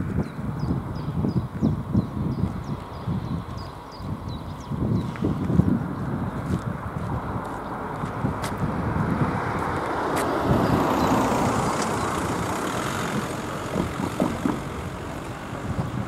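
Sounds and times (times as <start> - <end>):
car passing by: 7.2 - 16.0
tyres thumping over rails: 11.3 - 16.0.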